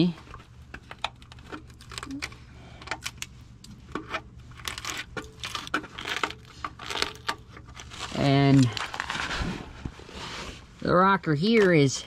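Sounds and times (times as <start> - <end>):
clicks and crackles of rusted metal: 0.0 - 9.3.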